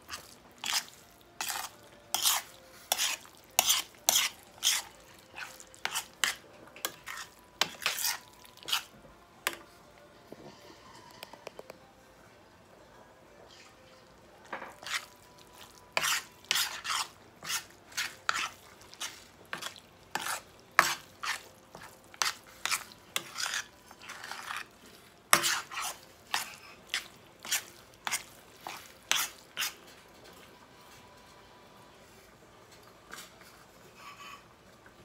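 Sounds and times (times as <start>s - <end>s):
spoon scraping a metal skillet: 0.1s - 9.7s, 14.6s - 30.0s, 33.1s - 34.5s.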